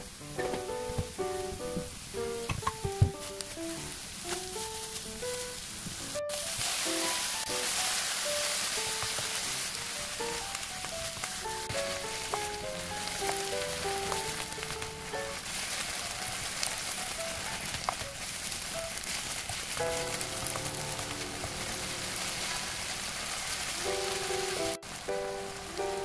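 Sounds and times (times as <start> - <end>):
light background music: 0.0 - 15.4, 19.8 - 23.2, 23.8 - 26.0
food sizzling in a frying pan: 0.0 - 26.0
wooden spatula stirring: 6.3 - 24.9.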